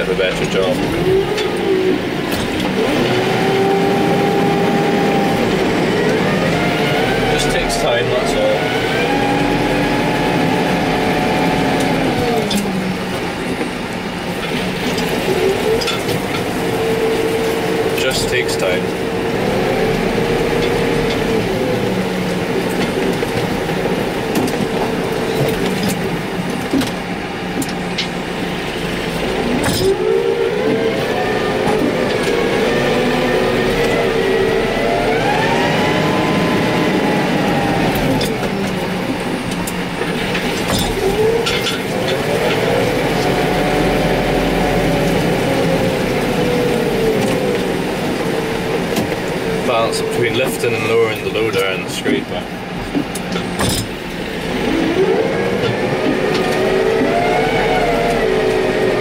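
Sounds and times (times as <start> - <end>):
tractor diesel engine running: 0.0 - 59.0
knocks and clatters: 22.6 - 28.2, 29.1 - 30.1, 37.9 - 43.3, 50.4 - 54.3.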